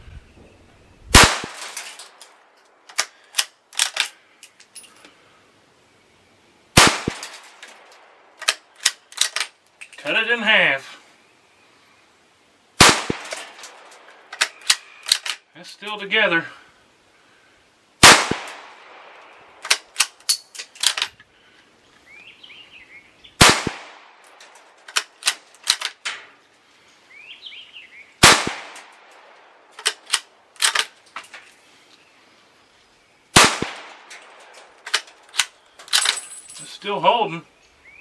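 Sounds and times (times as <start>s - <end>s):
birds chirping faintly: 0.0s - 38.0s
rifle shots: 1.1s - 1.8s, 6.8s - 7.6s, 12.8s - 15.4s, 18.0s - 20.2s, 23.4s - 24.2s, 28.2s - 29.1s, 33.4s - 34.4s
rifle bolt metallic clicks: 1.6s - 4.2s, 7.0s - 10.0s, 13.1s - 15.4s, 19.2s - 21.2s, 23.7s - 26.2s, 29.8s - 31.4s, 33.5s - 36.2s.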